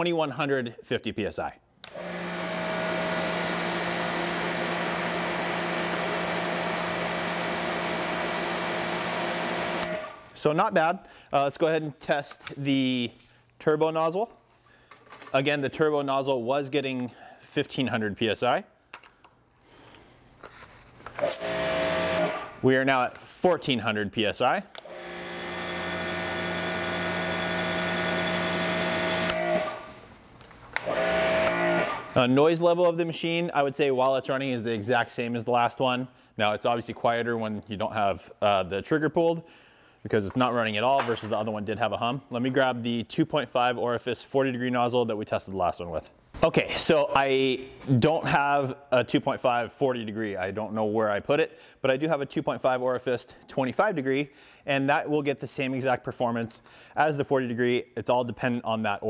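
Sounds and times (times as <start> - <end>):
pressure washer motor hum: 1.9 - 10.3, 21.2 - 22.6, 24.8 - 30.0, 30.8 - 32.2.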